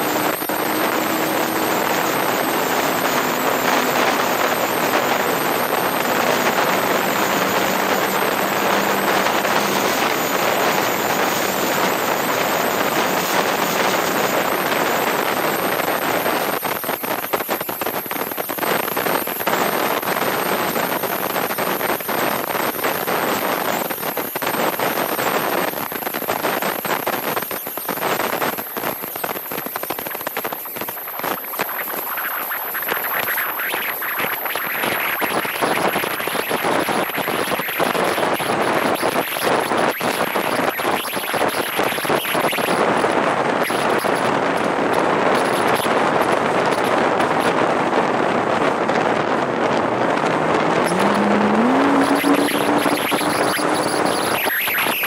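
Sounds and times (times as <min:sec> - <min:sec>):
wind and road noise: 0:00.0 - 0:55.0
faint engine tone: 0:49.8 - 0:55.0.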